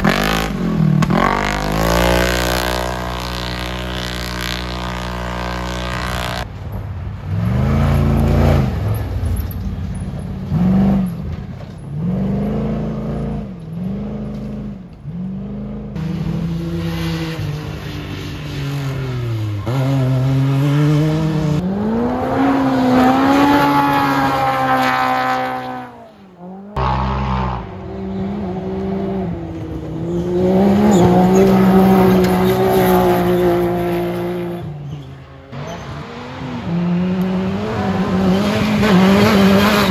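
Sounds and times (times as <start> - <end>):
off-road vehicle engines revving: 0.0 - 6.5, 7.2 - 39.9.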